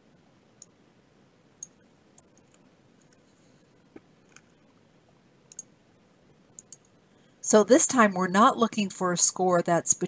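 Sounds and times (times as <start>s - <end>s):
mouse and keyboard clicks: 3.9s - 4.6s, 5.5s - 5.7s, 6.6s - 6.9s.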